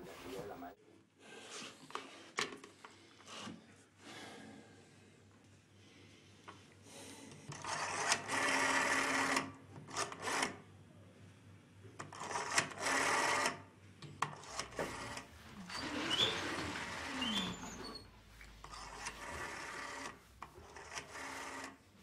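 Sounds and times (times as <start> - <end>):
rotary telephone dial whirring: 7.5 - 10.6, 12.0 - 18.0, 18.6 - 21.8.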